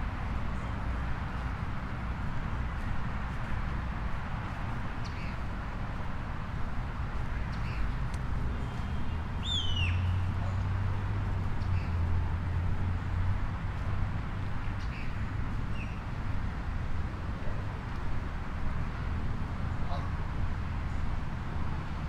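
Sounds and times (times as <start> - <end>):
distant city traffic rumble: 0.0 - 22.0
small birds chirping: 8.7 - 10.2.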